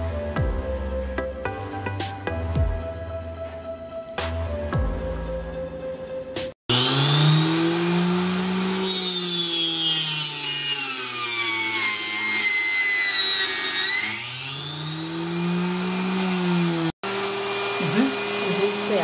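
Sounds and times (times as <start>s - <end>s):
table saw cutting wood: 6.7s - 19.0s.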